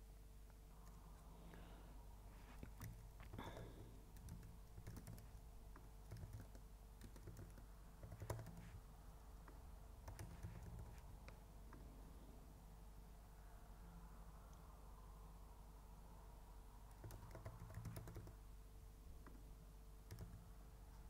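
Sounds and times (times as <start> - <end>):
low steady hum: 0.0 - 21.0
keyboard typing: 2.5 - 8.8, 10.0 - 11.4, 16.9 - 18.4, 20.0 - 20.5.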